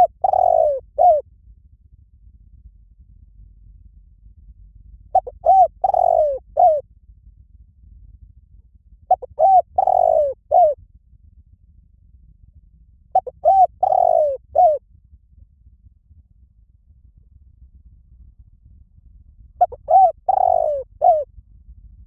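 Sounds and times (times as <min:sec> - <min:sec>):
dove cooing: 0:00.0 - 0:01.2, 0:05.1 - 0:06.8, 0:09.1 - 0:10.8, 0:13.2 - 0:14.8, 0:19.6 - 0:21.3.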